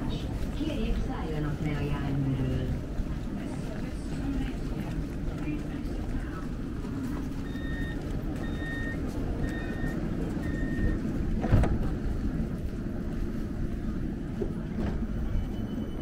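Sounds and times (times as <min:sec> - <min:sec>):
tram rumble: 0:00.0 - 0:16.0
electronic warning beep: 0:07.4 - 0:11.0, 0:15.2 - 0:16.0.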